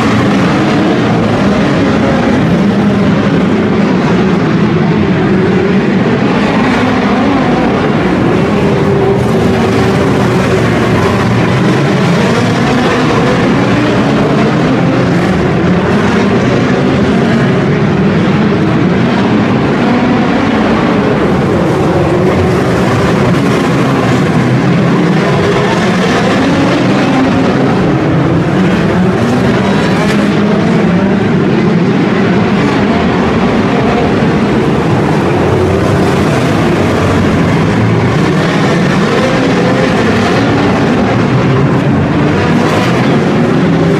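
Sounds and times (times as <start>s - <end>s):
race car engines racing: 0.0s - 43.9s.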